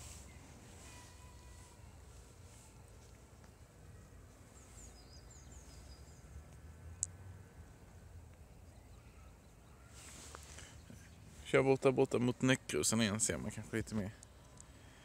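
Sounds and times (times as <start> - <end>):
birds chirping: 0.0 - 15.0.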